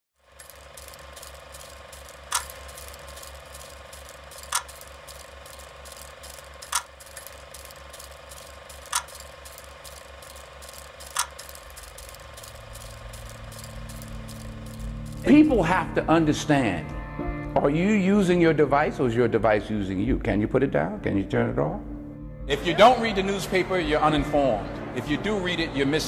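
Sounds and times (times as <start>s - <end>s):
rapid mechanical ticking: 0.2s - 15.4s
low pulsing hum: 0.4s - 16.8s.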